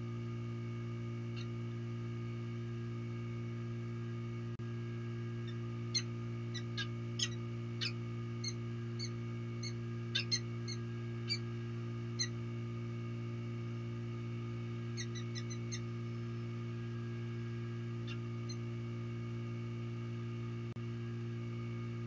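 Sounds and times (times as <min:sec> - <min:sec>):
low electrical hum: 0:00.0 - 0:22.0
falcon chip calls: 0:05.4 - 0:11.4, 0:15.0 - 0:15.8.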